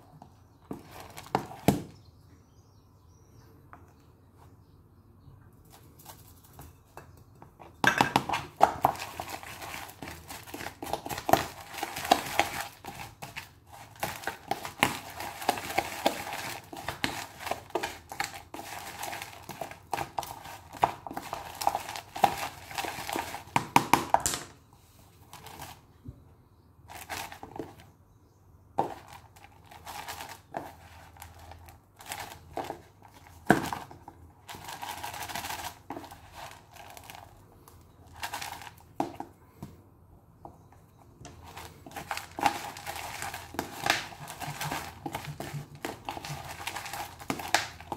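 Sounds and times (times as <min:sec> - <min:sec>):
seeds scraping in plastic tub: 0:41.4 - 0:47.9.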